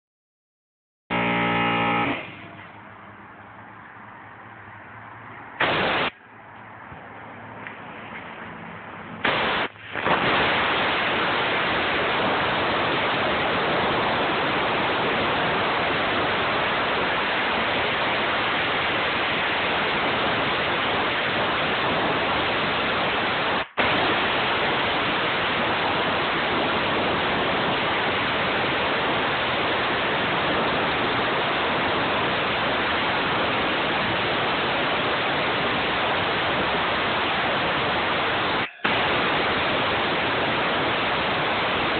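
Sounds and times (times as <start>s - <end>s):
air blow gun hissing: 5.6s - 6.1s, 9.2s - 41.9s.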